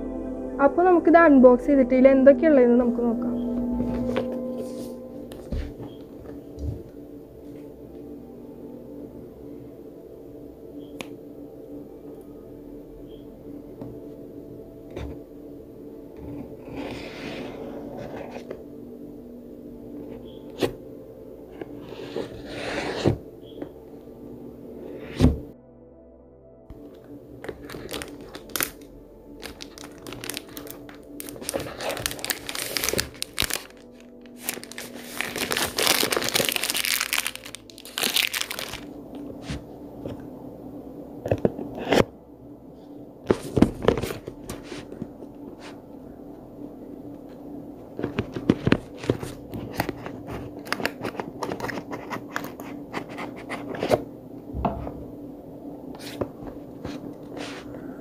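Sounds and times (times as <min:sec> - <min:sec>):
plastic shrink wrap crinkling: 0:27.4 - 0:39.3, 0:48.0 - 0:52.8
cardboard box handled: 0:29.8 - 0:37.2.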